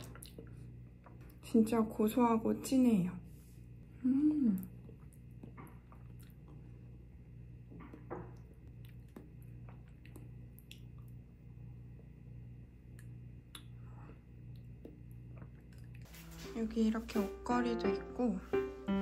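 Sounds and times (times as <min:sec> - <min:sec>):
wet mouth eating sounds: 0:00.0 - 0:01.3, 0:04.5 - 0:06.8, 0:08.6 - 0:11.2, 0:12.9 - 0:16.1
low room hum: 0:00.0 - 0:19.0.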